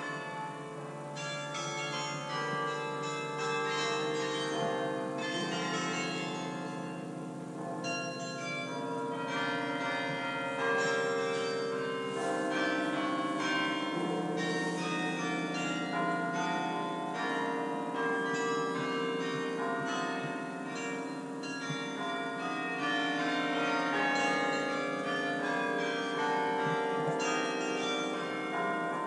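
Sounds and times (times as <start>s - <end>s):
carillon bells playing melody: 0.0s - 29.0s.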